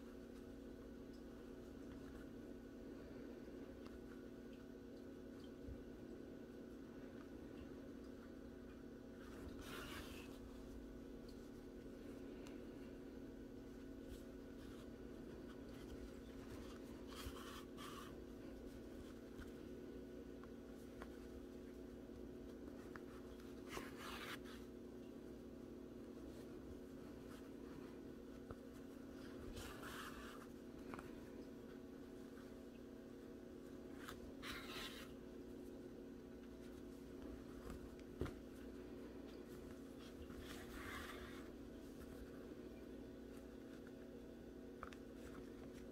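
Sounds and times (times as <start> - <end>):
low steady hum: 0.0 - 45.9
yarn and fabric rustling: 9.1 - 24.8, 26.0 - 32.8, 33.4 - 44.1.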